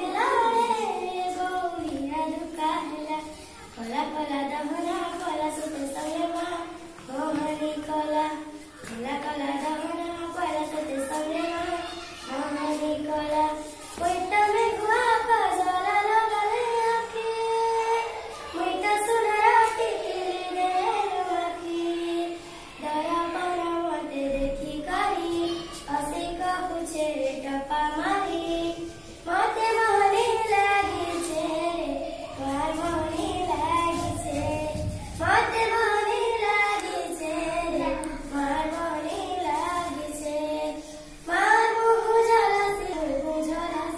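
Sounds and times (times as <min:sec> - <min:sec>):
girl singing unaccompanied: 0:00.0 - 0:43.9.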